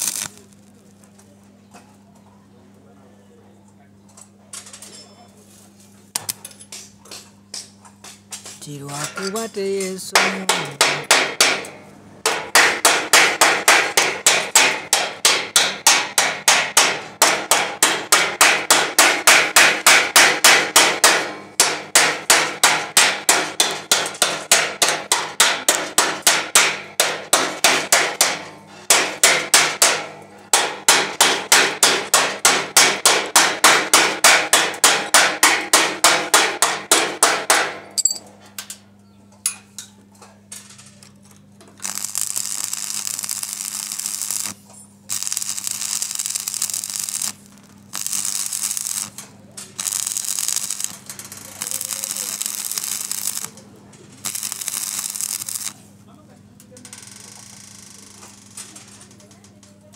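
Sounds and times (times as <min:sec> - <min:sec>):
hammer chipping metal: 0:07.6 - 0:38.2, 0:49.8 - 0:53.6.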